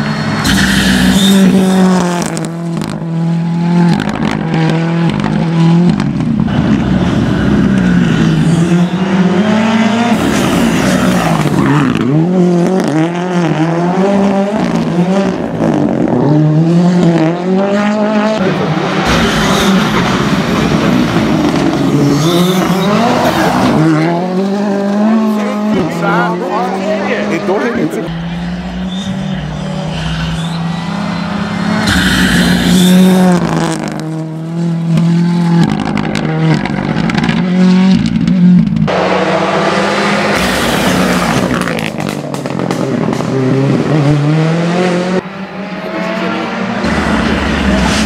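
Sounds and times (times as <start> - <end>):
rally car engine at full throttle: 0.0 - 48.0.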